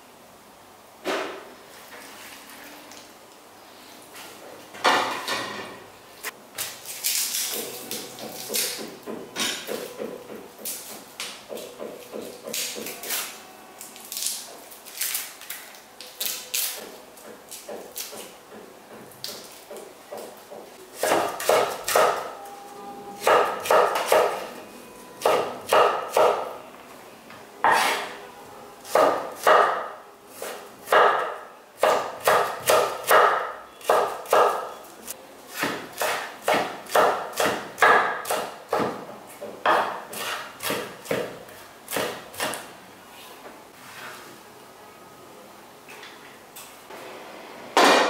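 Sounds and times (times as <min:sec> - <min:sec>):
knife chopping on wooden board: 0:16.8 - 0:22.2, 0:35.5 - 0:42.6.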